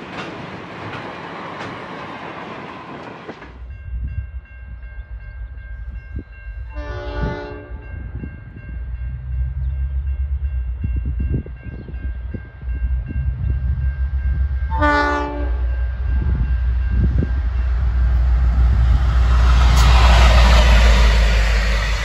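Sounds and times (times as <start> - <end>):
diesel locomotive engine rumble: 0.0 - 22.0
train rail noise: 0.0 - 22.0
train horn blast: 6.7 - 8.0, 14.7 - 15.8.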